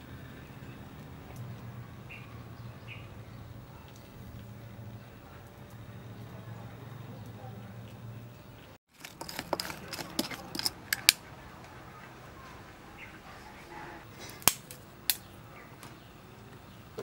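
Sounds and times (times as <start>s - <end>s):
charcoal clinking and scraping: 8.9s - 11.2s.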